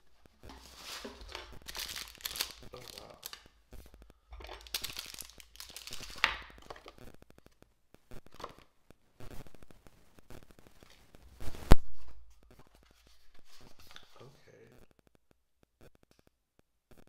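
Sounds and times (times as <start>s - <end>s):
plastic bag crinkling and tearing: 0.5s - 3.5s, 4.4s - 7.0s.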